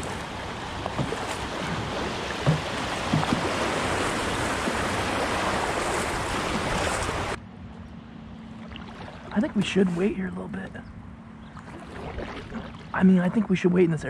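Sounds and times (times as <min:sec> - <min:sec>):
river water rushing and splashing: 0:00.0 - 0:07.4, 0:08.6 - 0:10.4, 0:11.6 - 0:13.2
light knocks on kayak hull: 0:02.4 - 0:03.6.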